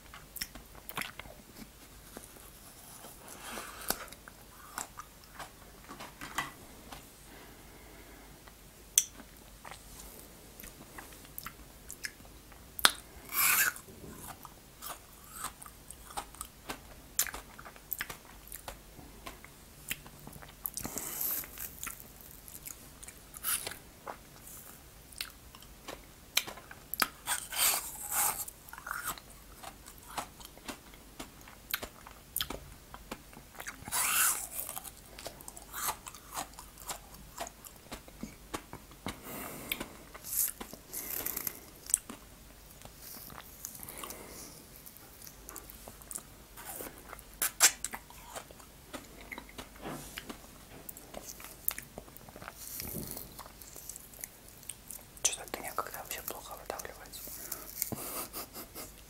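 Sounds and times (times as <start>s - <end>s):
biting and chewing ice pop: 10.6s - 55.2s.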